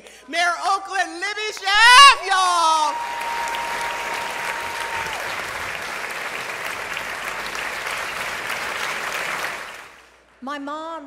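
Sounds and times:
audience applauding: 2.7 - 10.2.

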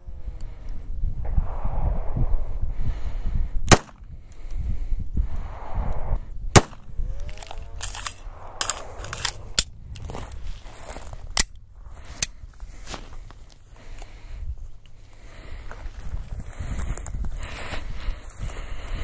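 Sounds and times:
pistol shot: 3.7 - 4.0, 6.5 - 6.9
rustling in dry brush: 7.2 - 11.3, 11.9 - 18.8.

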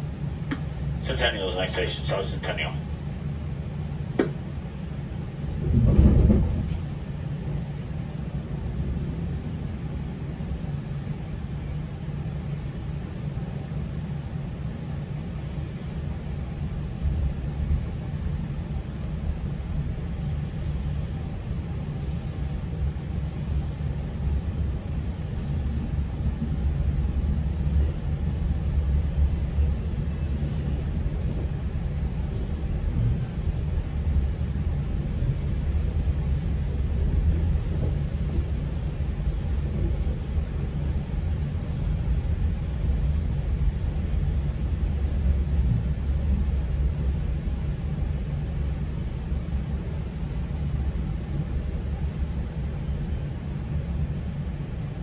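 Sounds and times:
train low rumble: 0.0 - 55.0.

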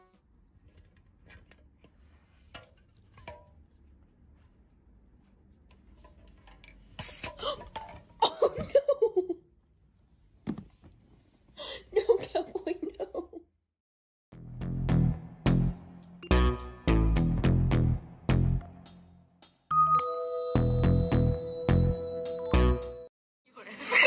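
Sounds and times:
person laughing: 8.2 - 9.4, 11.6 - 13.4, 23.6 - 24.0.

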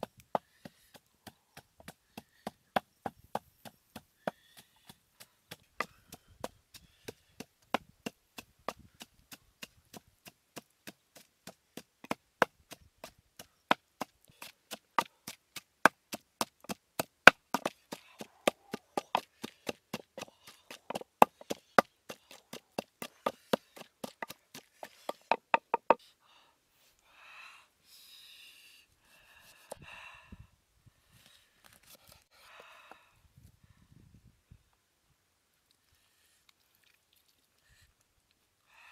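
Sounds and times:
wooden pestle pounding: 15.8 - 26.0.

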